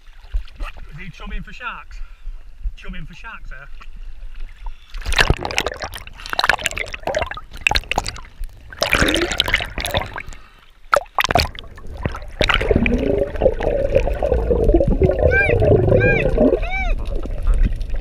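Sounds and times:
water splashing and gurgling: 3.8 - 18.0
muffled underwater rumble: 11.2 - 18.0.

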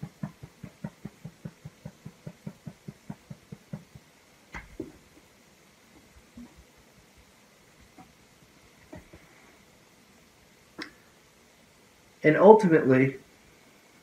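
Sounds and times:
fingertips tapping on sweatshirt: 0.0 - 5.0.

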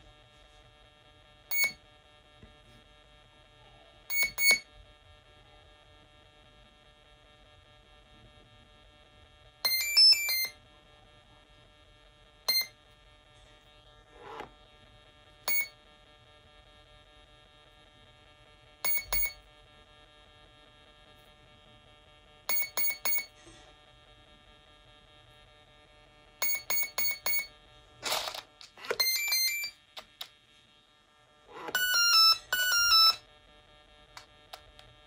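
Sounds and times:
motor beeping tune: 1.5 - 1.8, 4.1 - 4.6, 9.7 - 10.6, 12.5 - 12.7, 15.5 - 15.7, 18.9 - 19.4, 22.5 - 23.3, 26.4 - 30.3, 31.5 - 33.2
motor controller beeps: 1.5 - 1.8, 4.1 - 4.6, 9.7 - 10.6, 12.5 - 12.8, 15.5 - 15.8, 18.8 - 19.4, 22.5 - 23.3, 26.4 - 30.3, 31.5 - 33.2.

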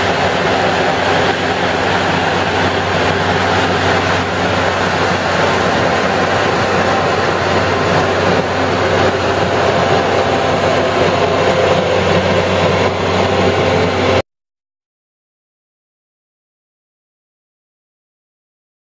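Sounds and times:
low engine hum: 0.0 - 14.2.

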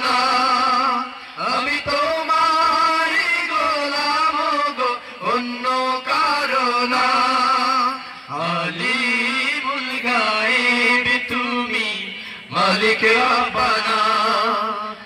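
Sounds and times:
men singing devotional song: 0.0 - 15.0.

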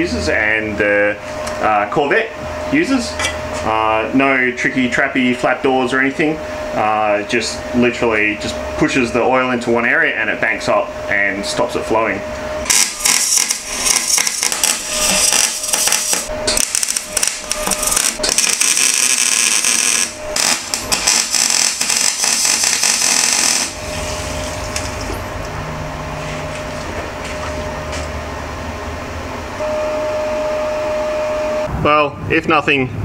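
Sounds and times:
mechanical hum with whine: 0.0 - 33.0
welder crackling and spitting: 12.7 - 24.9.

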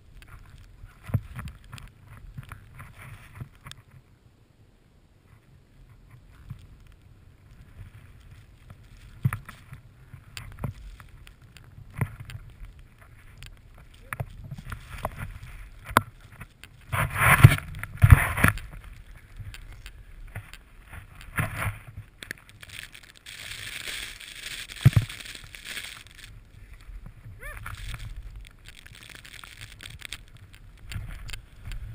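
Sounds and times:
snowboard rushing through powder: 13.1 - 30.8
hissing spray of snow: 22.9 - 28.4.

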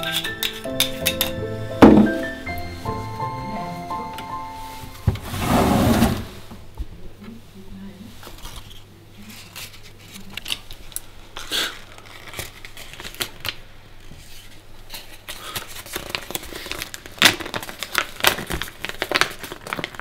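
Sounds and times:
paper crinkling: 8.2 - 20.0.

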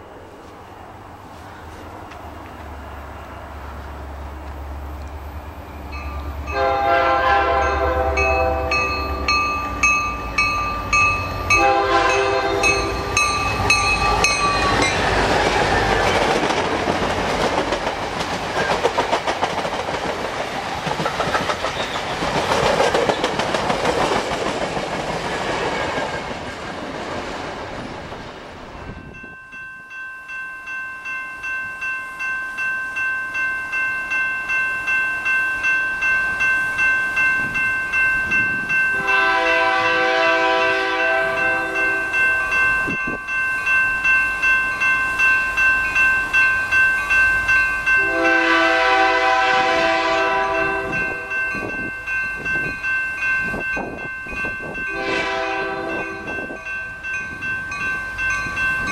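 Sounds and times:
crossing warning bell dinging: 1.6 - 26.1, 28.7 - 58.9
train horn blasts: 6.5 - 9.3, 11.5 - 13.2, 39.0 - 42.2, 48.0 - 51.4, 54.9 - 56.4
wheel and rail clatter: 12.6 - 28.3.

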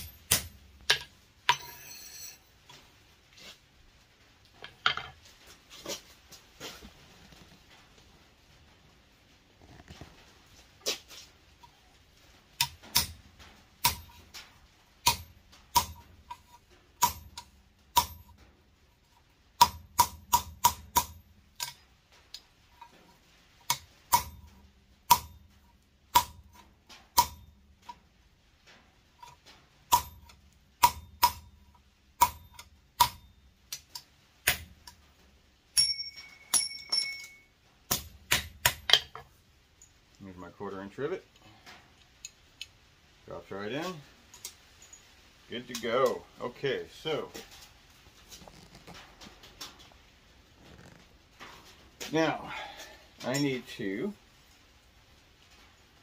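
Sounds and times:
hammer striking metal punch: 0.0 - 2.4, 12.6 - 13.2, 13.8 - 14.2, 15.0 - 16.0, 17.0 - 18.3, 19.6 - 21.7, 23.7 - 24.5, 25.1 - 25.4, 26.1 - 26.4, 27.2 - 27.4, 29.9 - 31.5, 32.2 - 33.3, 35.8 - 39.2
steady metal ring: 0.0 - 2.6, 35.8 - 39.2.

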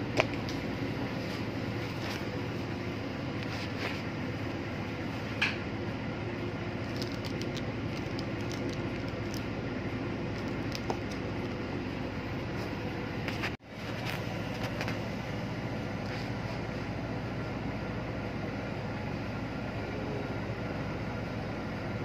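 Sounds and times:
low machinery drone: 0.0 - 22.0
plastic bag crinkling: 6.8 - 9.5.

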